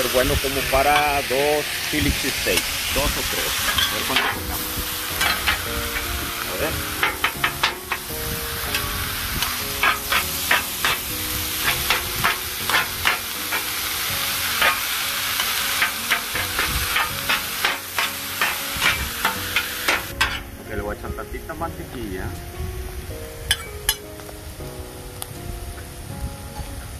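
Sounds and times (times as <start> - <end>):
meat sizzling on a griddle: 0.0 - 21.1
metal spatulas clacking on griddle: 3.7 - 4.6, 5.2 - 5.7, 7.0 - 8.1, 9.8 - 13.7, 14.6 - 20.5, 23.5 - 24.0.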